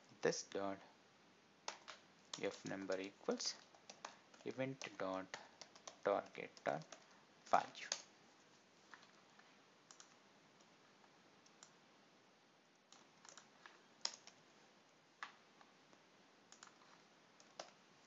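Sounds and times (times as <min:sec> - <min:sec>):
keyboard and mouse clicks: 0:01.7 - 0:08.1, 0:09.9 - 0:10.7, 0:11.4 - 0:11.8, 0:12.8 - 0:14.4, 0:16.5 - 0:17.8.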